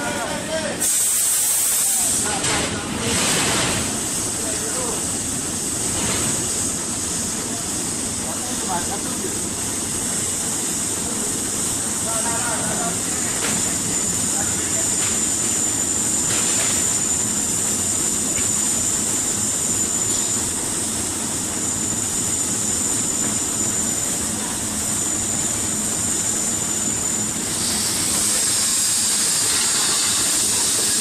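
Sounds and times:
welding machinery noise: 0.0s - 31.0s
loud hiss: 0.8s - 2.4s, 25.0s - 31.0s.

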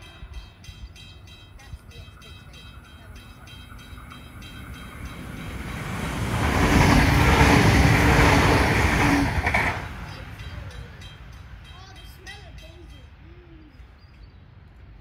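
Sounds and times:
diesel railcar passing: 0.0s - 15.0s
rush of train wheels: 1.8s - 11.2s.

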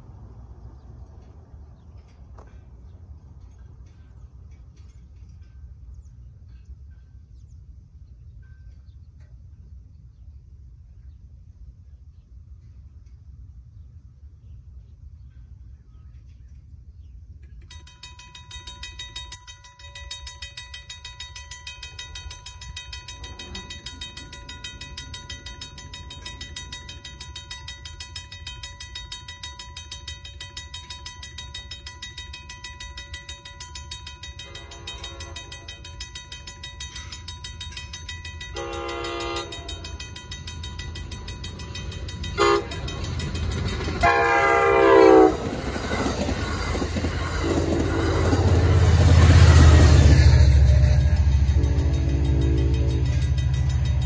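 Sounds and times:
train rumble: 0.0s - 54.0s
railroad crossing bell ringing: 1.2s - 7.4s, 8.4s - 9.7s, 17.6s - 54.0s
train horn blowing: 34.4s - 35.7s, 38.5s - 39.8s, 42.4s - 42.8s, 44.0s - 45.5s, 49.6s - 53.4s.

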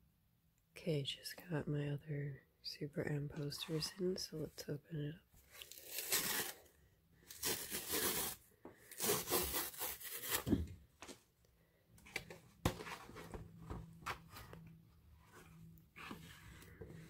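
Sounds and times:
cardboard tear strip ripping: 5.6s - 6.7s, 7.3s - 10.6s.

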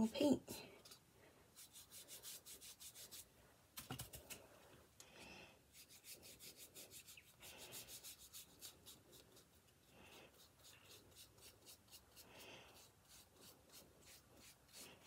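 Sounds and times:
paintbrush dabbing strokes: 0.9s - 3.4s, 5.7s - 15.0s.

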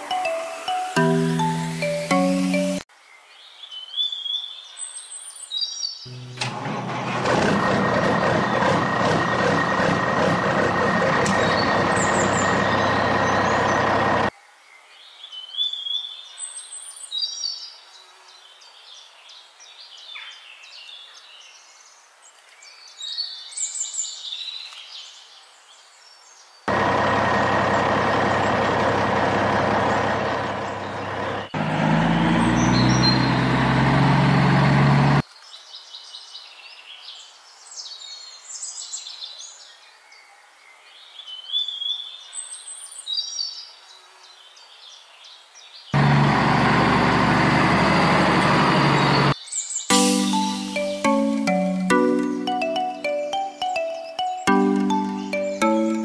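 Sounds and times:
truck engine running: 6.1s - 14.3s, 26.7s - 35.2s, 46.0s - 49.4s
birds chirping: 7.0s - 14.3s, 26.7s - 36.4s, 44.4s - 56.0s.

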